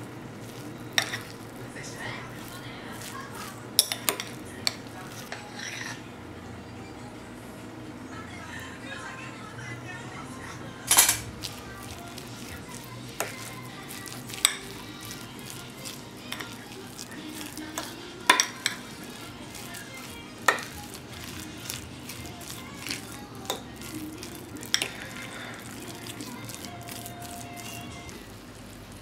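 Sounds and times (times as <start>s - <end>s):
fork mashing potatoes: 0.4s - 6.0s, 11.0s - 28.3s
fork clinking against bowl: 1.0s - 1.4s, 13.2s - 15.2s, 17.4s - 19.2s, 20.4s - 21.8s.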